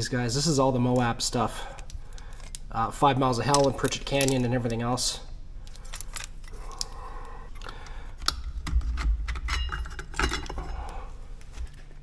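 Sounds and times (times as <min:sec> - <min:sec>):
metal discs clinking: 0:09.3 - 0:10.9.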